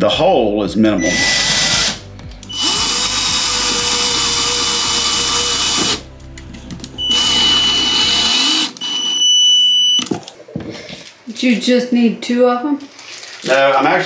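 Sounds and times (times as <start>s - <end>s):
power drill whining: 1.0s - 6.1s, 7.0s - 10.0s.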